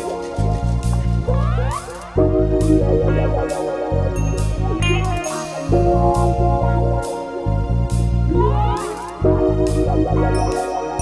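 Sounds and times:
live band slow groove: 0.0 - 11.0
deep bass line: 0.3 - 10.6
person singing: 8.3 - 9.3.

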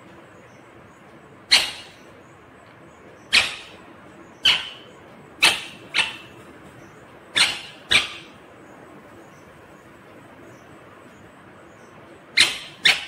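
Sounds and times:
parakeet squawking: 1.5 - 2.1, 3.2 - 3.8, 4.4 - 6.4, 7.3 - 8.4, 12.4 - 13.0.

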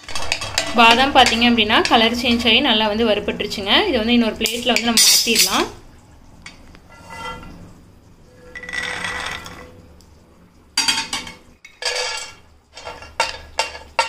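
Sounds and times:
rattle with ringing tone: 8.3 - 9.8.

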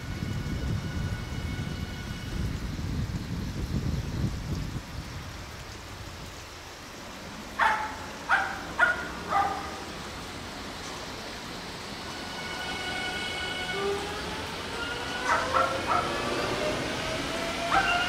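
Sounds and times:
electric train rumbling past: 0.0 - 3.7, 7.2 - 18.0.

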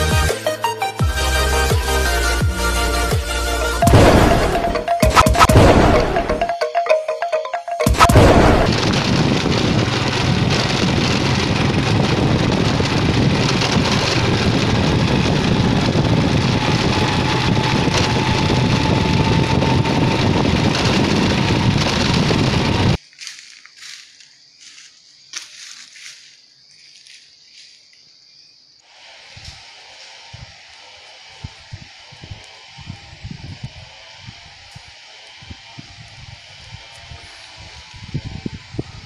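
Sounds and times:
intro music: 1.0 - 8.7
loud boom: 3.8 - 6.5, 7.9 - 9.7.

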